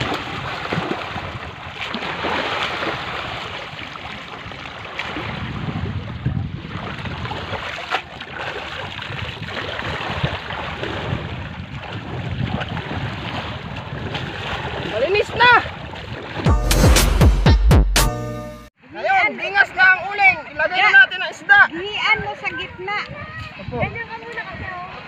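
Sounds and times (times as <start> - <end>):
wind on microphone: 0.0 - 16.4, 21.9 - 25.0
seawater lapping and splashing: 0.0 - 16.5, 19.6 - 25.0.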